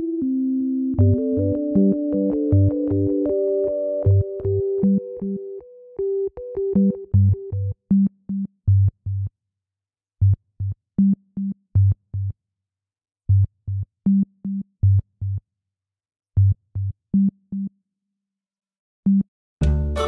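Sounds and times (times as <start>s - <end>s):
bouncy low staccato music: 19.1s - 20.0s.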